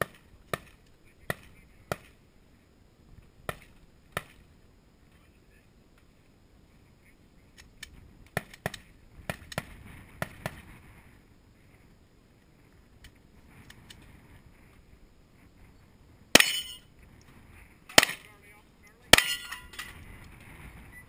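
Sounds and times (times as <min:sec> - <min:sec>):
distant pistol shots: 0:16.4 - 0:16.8, 0:17.9 - 0:18.3.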